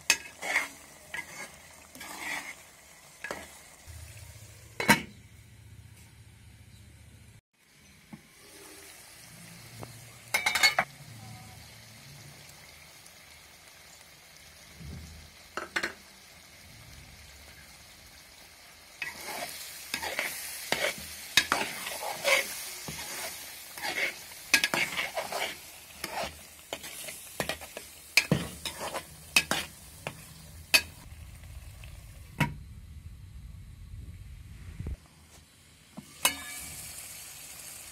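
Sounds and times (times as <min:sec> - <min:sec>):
metal spoon scraping pot: 0:00.0 - 0:02.6, 0:19.0 - 0:31.0
food sizzling in pot: 0:00.0 - 0:06.1, 0:07.6 - 0:37.9.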